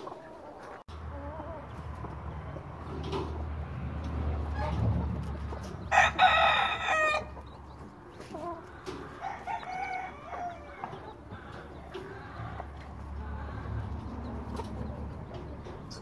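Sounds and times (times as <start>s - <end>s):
chicken clucking: 0.0s - 16.0s
chicken crowing: 5.8s - 7.4s, 8.4s - 13.8s.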